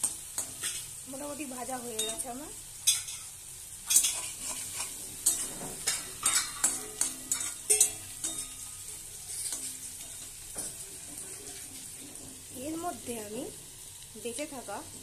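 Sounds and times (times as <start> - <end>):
vegetables sizzling in hot oil: 0.0 - 15.0
spatula scraping a metal pan: 2.8 - 12.6.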